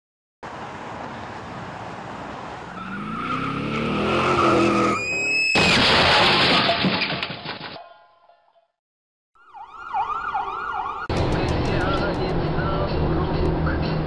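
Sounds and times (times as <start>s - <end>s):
car engine revving: 2.8s - 5.0s
loud crash: 5.4s - 7.8s.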